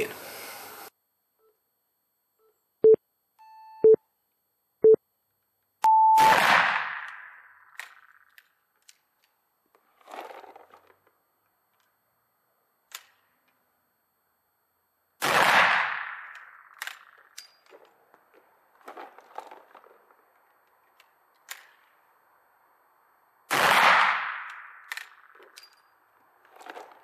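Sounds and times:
short beeps: 2.4 - 4.0, 5.8 - 6.4
rifle shot echoing: 6.2 - 7.6, 15.2 - 16.7, 23.5 - 24.9.

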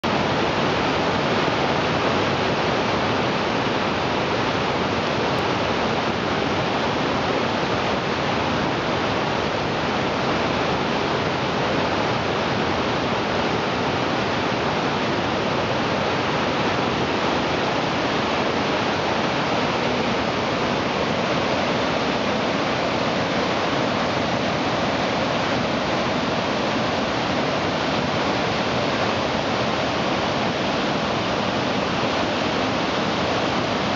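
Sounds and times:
creek rushing over boulders: 0.0 - 33.9.

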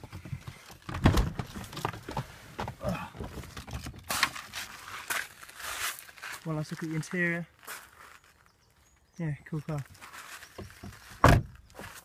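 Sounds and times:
footsteps on gravel: 4.1 - 9.0, 9.6 - 12.0
car door opening clunk: 11.2 - 11.6.

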